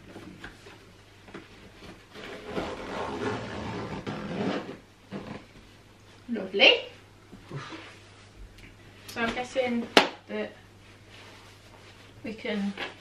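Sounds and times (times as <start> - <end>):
fabric rustling and frame rubbing: 0.8 - 5.8.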